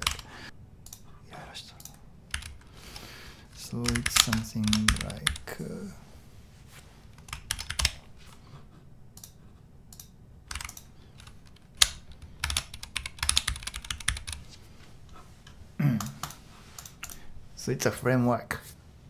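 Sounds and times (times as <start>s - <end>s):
computer keyboard typing: 0.0s - 1.0s, 1.8s - 2.7s, 3.6s - 5.5s, 7.2s - 8.1s, 9.2s - 14.4s, 16.0s - 17.2s.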